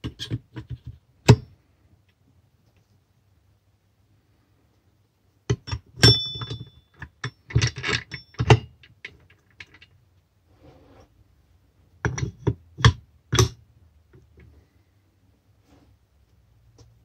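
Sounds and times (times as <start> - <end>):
metal tools clicking and knocking: 5.5 - 10.0, 12.0 - 13.6
brief metallic ring: 6.0 - 6.8.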